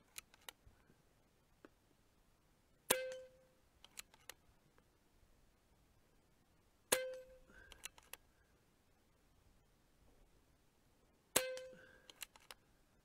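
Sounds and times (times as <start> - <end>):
light clicks: 11.6 - 12.6.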